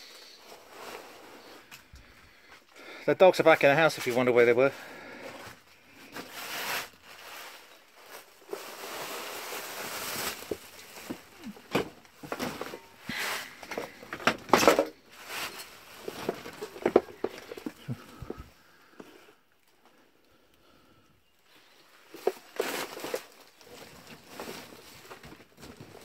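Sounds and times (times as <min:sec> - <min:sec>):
rustling and scraping through junk: 0:00.0 - 0:20.0, 0:21.3 - 0:26.0.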